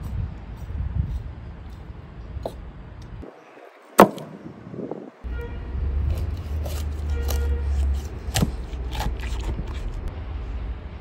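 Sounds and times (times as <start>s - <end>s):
steady low rumble: 4.2s - 11.0s
knife cutting raw chicken: 6.0s - 10.1s.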